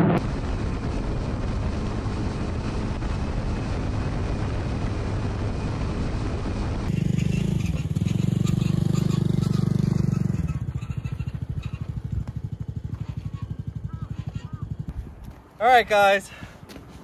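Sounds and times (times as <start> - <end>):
rushing noise with low rumble: 0.0 - 8.0
small motorcycle engine running: 0.0 - 14.9.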